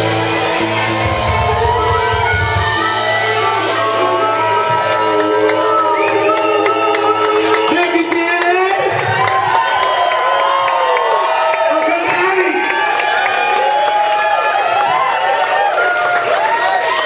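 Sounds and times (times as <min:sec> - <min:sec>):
live rock band playing: 0:00.0 - 0:09.6
crowd shouting and cheering: 0:00.0 - 0:17.0.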